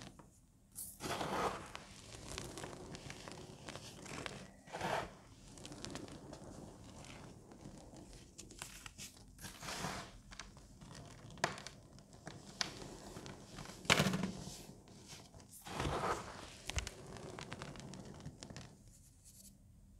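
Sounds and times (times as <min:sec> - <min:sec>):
powder crunching and crumbling: 0:01.0 - 0:08.1.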